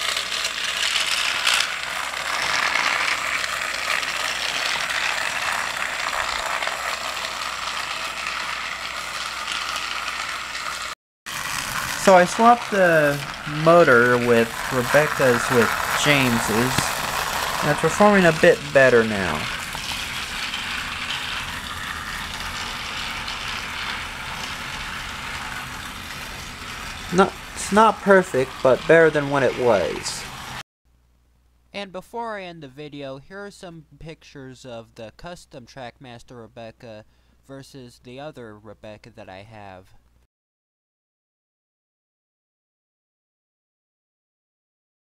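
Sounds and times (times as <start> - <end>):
toy train motor whirring: 0.0 - 30.6
toy train wheels slipping: 0.0 - 30.6.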